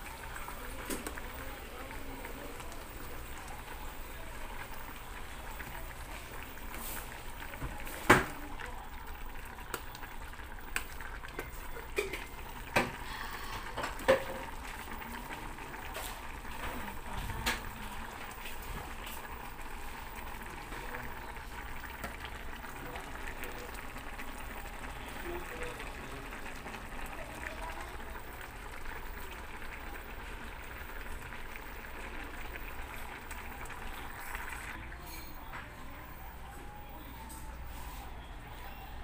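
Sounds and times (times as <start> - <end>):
noodles boiling in a pot: 0.0 - 39.0.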